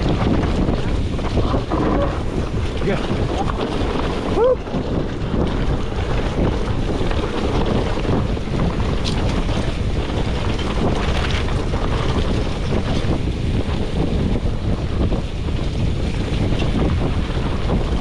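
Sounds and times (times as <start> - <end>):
bike clicks and knocks: 0.0 - 14.2
bike rolling on gravel trail: 0.0 - 18.0
wind buffeting microphone: 0.0 - 18.0.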